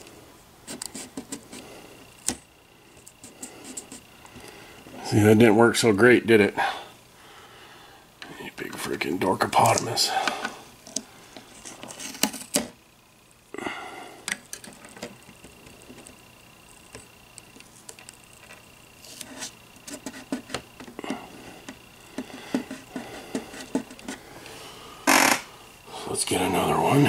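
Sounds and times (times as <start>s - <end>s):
faint high whine: 0.0s - 27.0s
hands handling tape: 0.6s - 2.4s, 9.6s - 12.8s, 16.9s - 24.2s.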